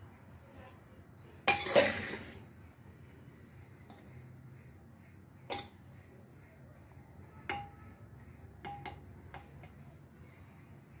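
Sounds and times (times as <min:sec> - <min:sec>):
metal spoon clinking on pot: 0:01.5 - 0:02.2, 0:05.5 - 0:05.9, 0:07.4 - 0:07.9, 0:08.6 - 0:09.8.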